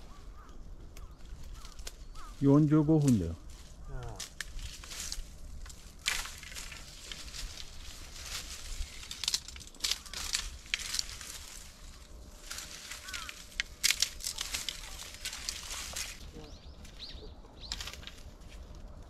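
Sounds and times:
bamboo and branches rustling: 0:00.0 - 0:19.0
branches snapping and crunching: 0:00.1 - 0:19.0.

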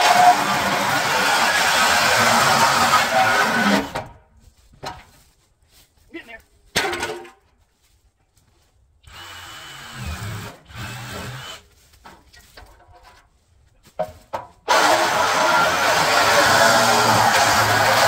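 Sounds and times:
reciprocating saw cutting steel: 0:00.0 - 0:04.0, 0:14.7 - 0:18.0.

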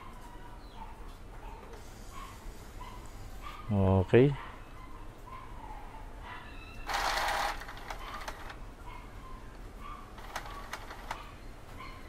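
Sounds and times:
printer mechanism noise: 0:06.9 - 0:08.6, 0:10.2 - 0:11.3
printer carriage clicks and ticks: 0:10.2 - 0:11.2.

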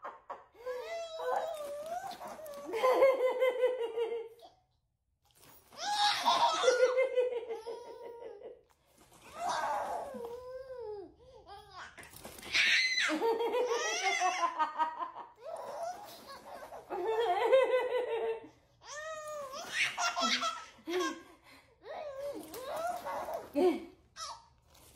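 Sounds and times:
baby laughing: 0:05.8 - 0:08.6, 0:11.5 - 0:14.6, 0:15.4 - 0:17.5, 0:18.9 - 0:21.3.

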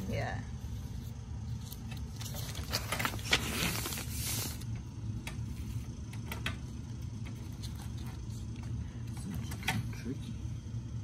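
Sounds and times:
paper rustling: 0:01.5 - 0:04.7.

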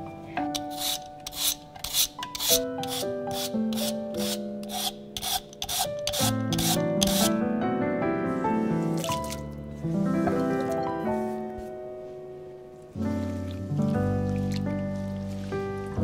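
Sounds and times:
soft piano music: 0:00.0 - 0:16.0
rhythmic rasping of food grating: 0:00.5 - 0:07.3.

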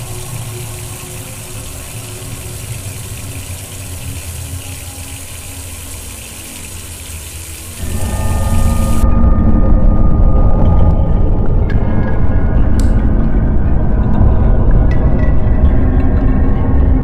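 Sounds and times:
low steady hum: 0:07.7 - 0:14.7.

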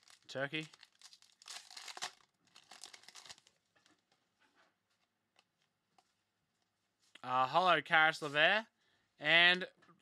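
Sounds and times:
foil wrapper tearing and crinkling: 0:00.0 - 0:03.6.

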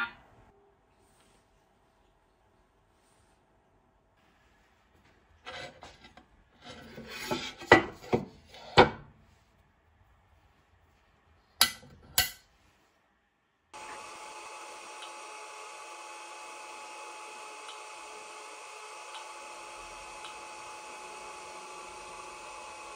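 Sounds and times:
parts rubbing and scraping: 0:04.9 - 0:08.8
steady whir: 0:13.8 - 0:22.9.

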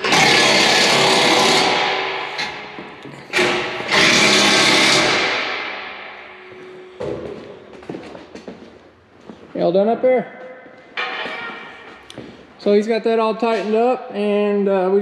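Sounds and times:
impact wrench rattling: 0:00.0 - 0:07.2.

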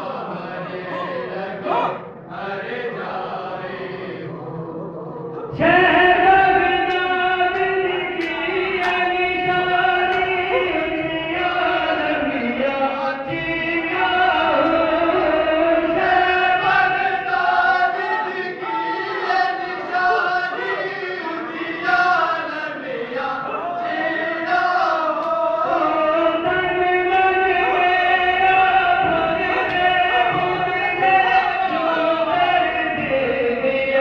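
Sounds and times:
voices chanting with held notes: 0:00.0 - 0:34.0.

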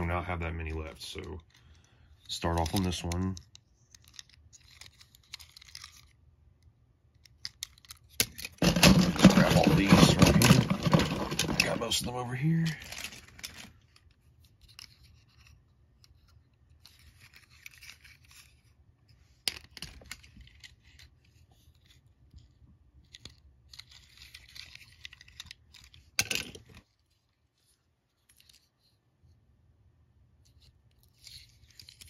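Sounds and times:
toy cars clacking: 0:02.2 - 0:06.2, 0:07.2 - 0:14.0
rustling and scraping of cardboard: 0:08.4 - 0:13.8.

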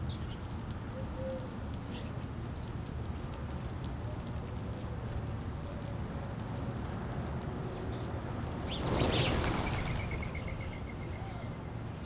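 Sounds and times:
birds chirping: 0:07.7 - 0:12.0
birds' wings fluttering: 0:08.6 - 0:10.9.

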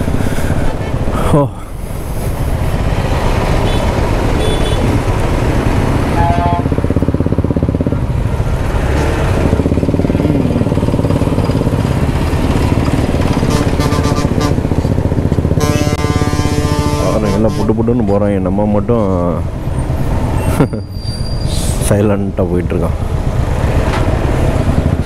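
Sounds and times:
motorcycle engine running: 0:02.4 - 0:17.3.

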